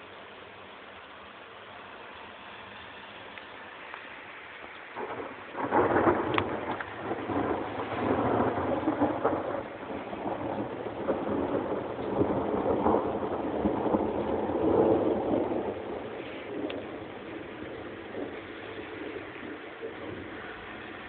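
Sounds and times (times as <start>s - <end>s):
thunder rumbling and crackling: 4.9s - 21.0s.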